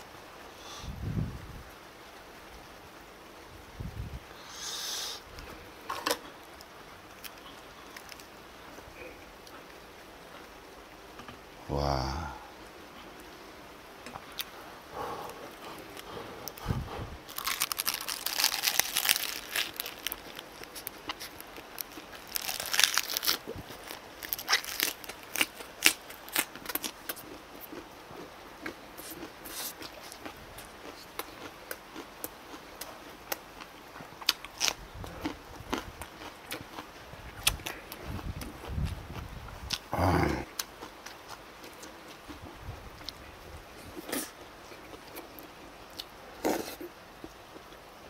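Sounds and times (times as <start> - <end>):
crisp crunching of cabbage leaf: 7.2 - 8.3, 15.8 - 27.8, 28.6 - 33.4, 34.2 - 39.9
soft chewing with clicks: 17.3 - 39.9.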